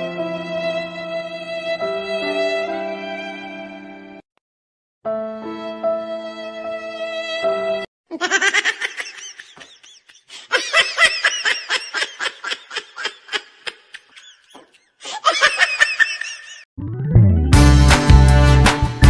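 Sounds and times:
high-pitched laughter bursts: 0:08.1 - 0:16.6
upbeat music with heavy bass: 0:17.2 - 0:19.0.

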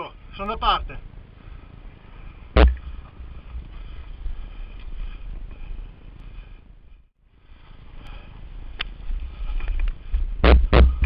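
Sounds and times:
wind on microphone: 0:07.8 - 0:11.0.

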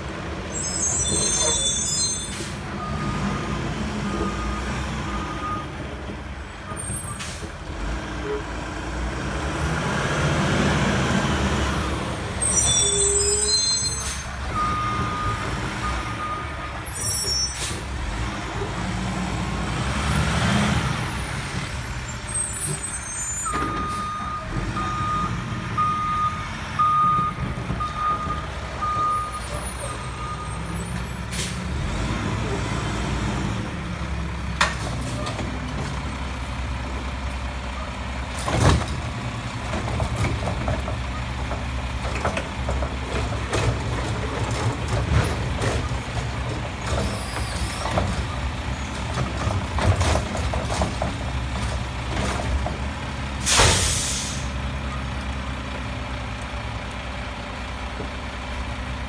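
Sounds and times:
garbage truck engine revving: 0:07.5 - 0:12.6, 0:17.6 - 0:22.2, 0:29.7 - 0:58.8
reversing alarm beeps: 0:23.5 - 0:30.6
air brake hisses: 0:53.4 - 0:54.6.

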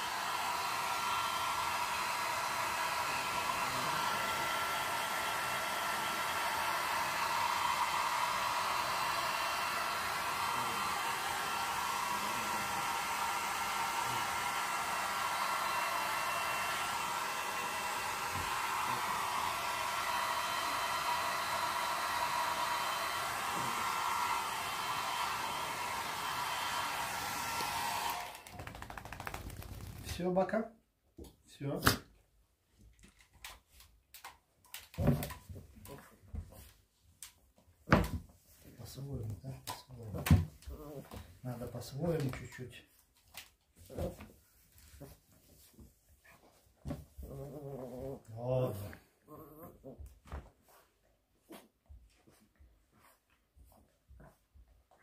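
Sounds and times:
hair dryer running: 0:00.0 - 0:30.0.

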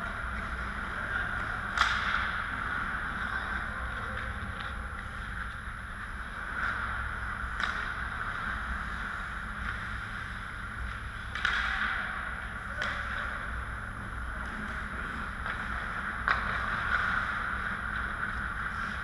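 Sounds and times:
hockey sticks and puck clacking: 0:00.0 - 0:19.0
steady low hum: 0:00.0 - 0:19.0
skate blades scraping ice: 0:14.3 - 0:19.0.

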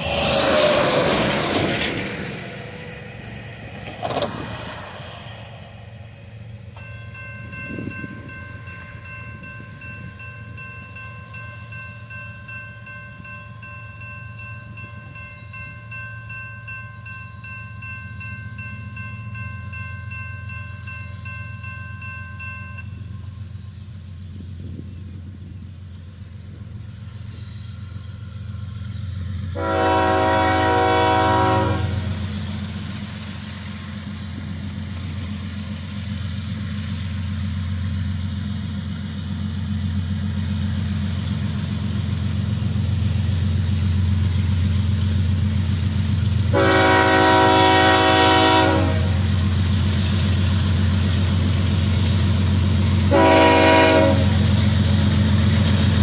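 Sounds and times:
locomotive engine rumble: 0:00.0 - 0:56.0
train horn blasts: 0:29.5 - 0:32.2, 0:46.4 - 0:49.4, 0:53.0 - 0:54.6.

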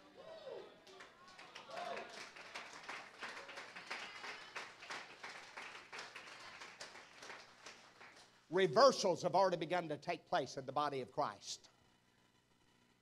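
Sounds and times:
crowd applauding: 0:00.8 - 0:08.4.

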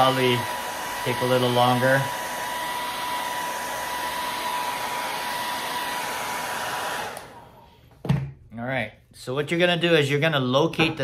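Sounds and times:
hair dryer blowing: 0:00.0 - 0:08.0.

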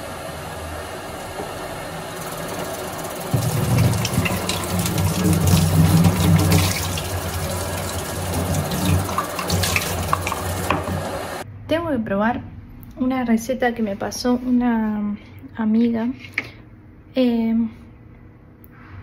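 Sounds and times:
tap running into sink: 0:03.3 - 0:11.4
water splashing: 0:03.3 - 0:11.4.

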